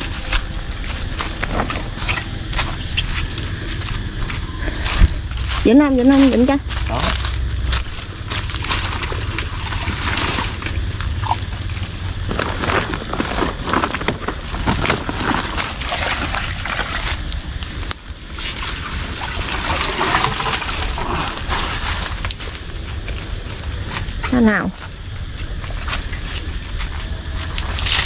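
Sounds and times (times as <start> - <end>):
water sloshing and splashing: 7.2 - 23.6.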